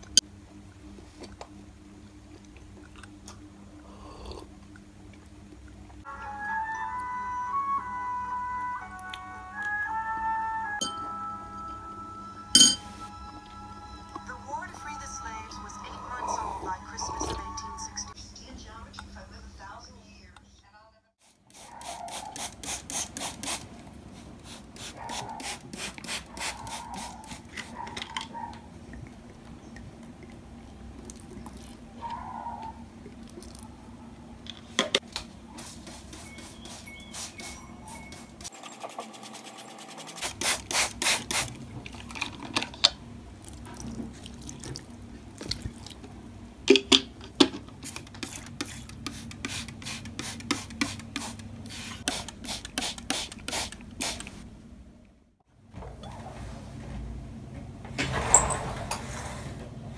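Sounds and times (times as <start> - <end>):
spray bottle squirting: 21.5 - 23.7, 38.7 - 41.6, 47.8 - 54.4.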